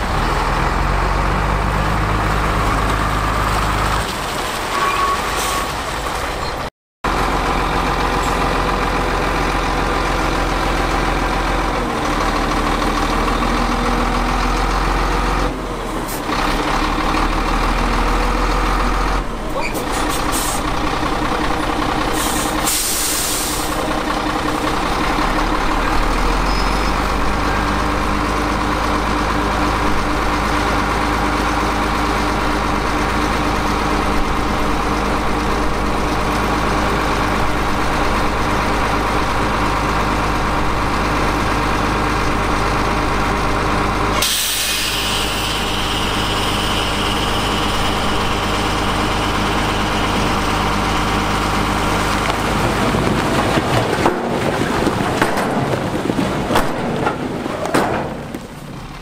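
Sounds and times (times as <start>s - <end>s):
diesel truck engine running: 0.0s - 59.0s
air hissing: 22.2s - 23.8s, 44.2s - 48.1s.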